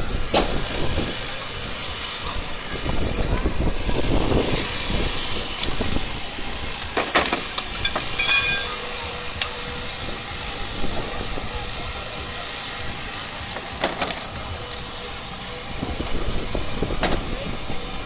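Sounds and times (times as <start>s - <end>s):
crowd chatter: 0.0s - 18.0s
engine running: 0.0s - 18.0s.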